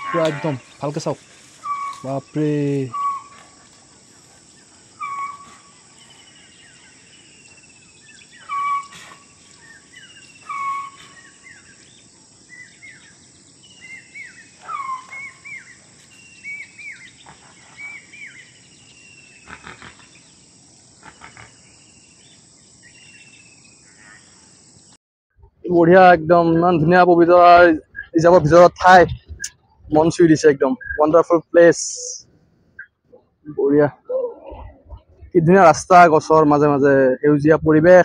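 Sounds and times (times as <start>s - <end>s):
insects hissing: 0.0s - 25.0s
bird chirps: 0.0s - 25.5s, 27.8s - 35.4s.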